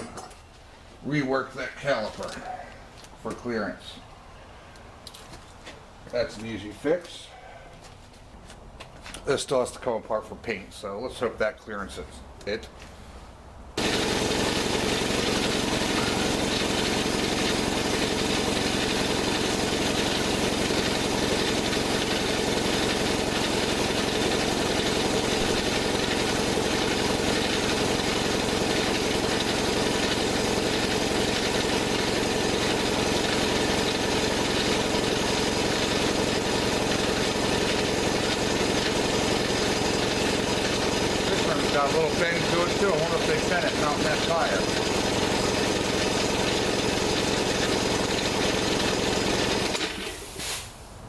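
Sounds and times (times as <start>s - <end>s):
chain driving spinning wheel: 13.8s - 49.9s
small engine running steadily: 13.8s - 50.3s.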